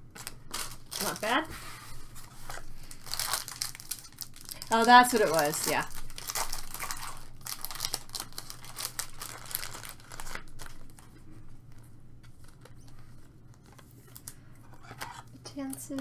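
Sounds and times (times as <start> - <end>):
wrapper crinkling and tearing: 0.0 - 1.5, 2.1 - 11.1
cards rustling: 0.2 - 16.0.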